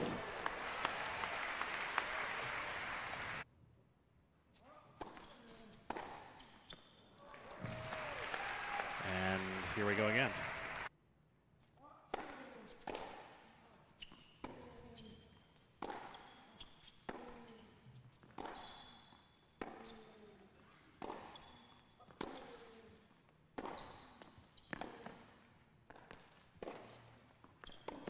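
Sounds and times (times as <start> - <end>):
sneaker squeaks: 4.6 - 7.8, 12.2 - 28.0
tennis racket striking ball: 5.9 - 6.4, 12.1 - 13.4, 15.8 - 16.2.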